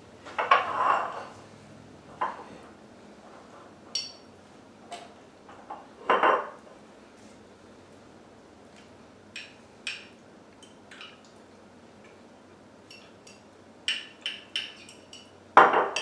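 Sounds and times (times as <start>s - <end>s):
forks clinking on bowls: 12.9s - 16.0s.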